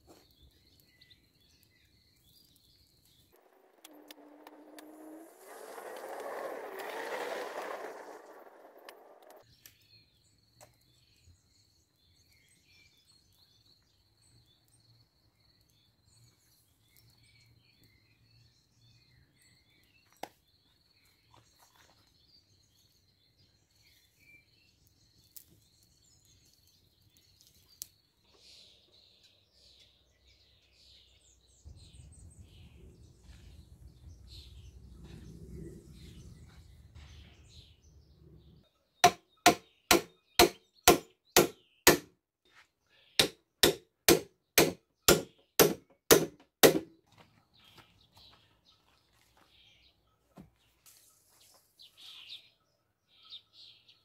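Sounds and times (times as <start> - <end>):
faint birds chirping: 0.0 - 41.9, 42.5 - 43.6, 47.1 - 54.0
low rumble: 31.7 - 38.6
loud sharp knocks: 39.0 - 42.1, 43.2 - 46.9.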